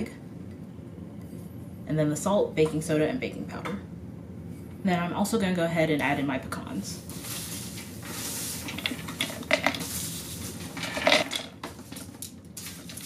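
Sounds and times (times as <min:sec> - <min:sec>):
nuts rattling into plastic bowl: 0:07.2 - 0:13.0.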